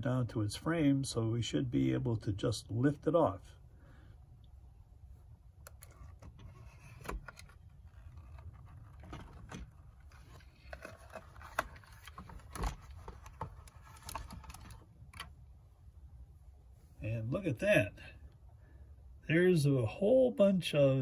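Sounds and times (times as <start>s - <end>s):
plastic parts clicking and scraping: 5.6s - 15.3s.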